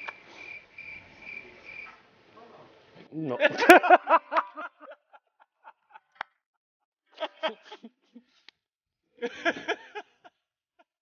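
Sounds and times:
man laughing: 3.4 - 6.2, 7.2 - 8.3, 9.2 - 10.3.

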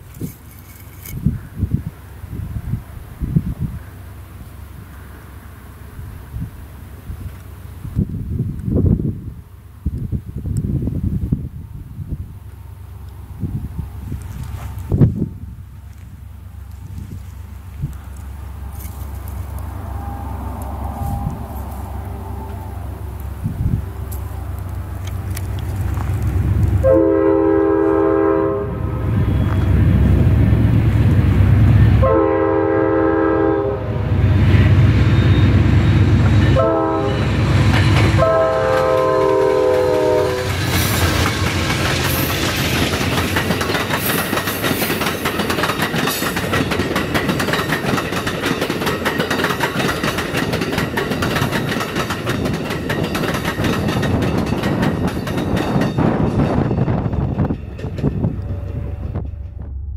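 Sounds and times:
locomotive horn: 19.6 - 23.3, 26.8 - 30.0, 31.7 - 40.8
train wheels clicking over rail: 37.5 - 58.5.

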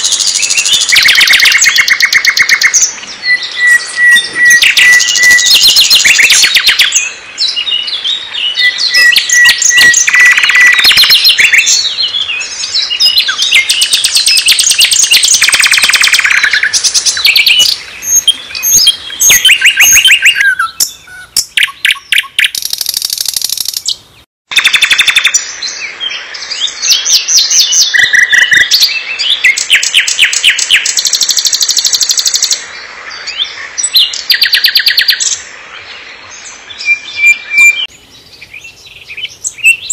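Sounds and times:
nightingale singing: 0.0 - 39.9.

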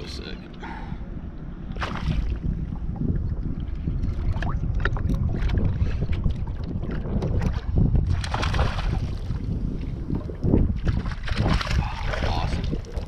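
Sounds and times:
wind buffeting microphone: 0.0 - 13.0
water splashes: 1.6 - 13.0.

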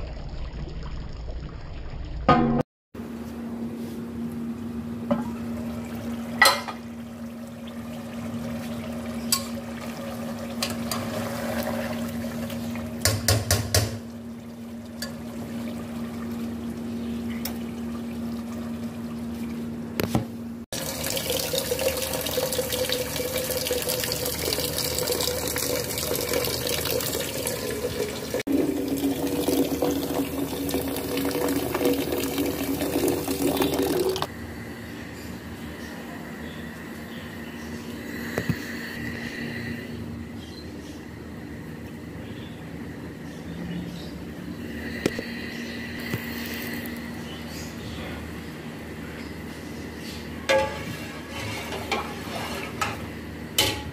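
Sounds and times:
tap water running into pot: 5.1 - 14.2, 20.8 - 34.3.

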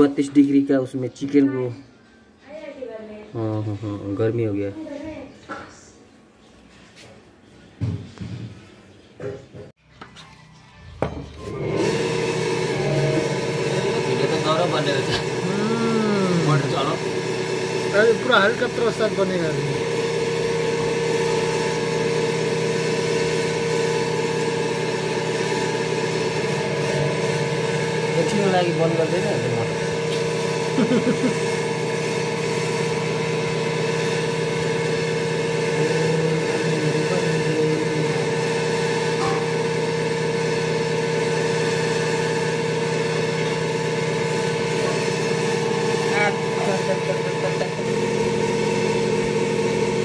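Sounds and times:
machine motor humming: 11.4 - 50.0.

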